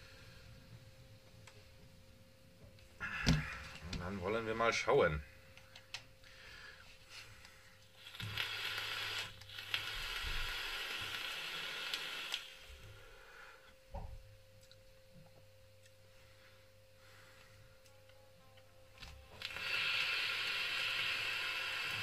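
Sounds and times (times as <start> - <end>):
vape coil hissing and sizzling: 7.8 - 13.2, 19.3 - 22.0.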